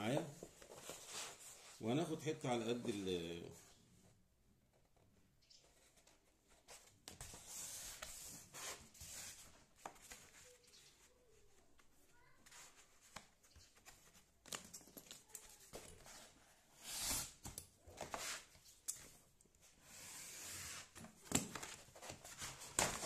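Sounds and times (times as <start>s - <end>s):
cardboard rustling and scraping: 0.1s - 2.1s, 5.7s - 18.8s, 19.6s - 23.0s.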